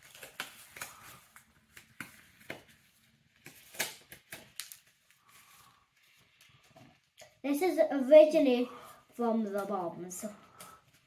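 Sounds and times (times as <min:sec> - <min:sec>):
disposable glove crinkling: 0:00.0 - 0:07.4.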